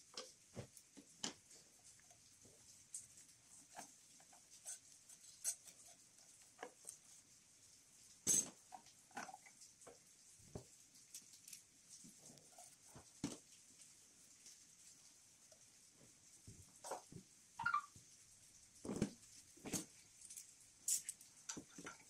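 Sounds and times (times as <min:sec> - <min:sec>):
hands handling metal parts: 0:08.2 - 0:09.4.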